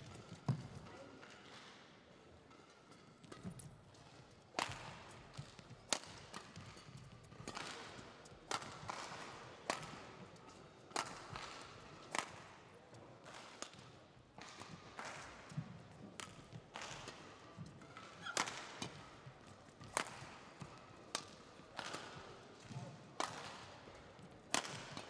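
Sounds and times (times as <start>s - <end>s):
rackets hitting shuttlecock: 4.5s - 10.0s, 10.9s - 12.4s, 13.2s - 17.2s, 17.8s - 25.0s
shoes squeaking on court: 18.2s - 18.5s.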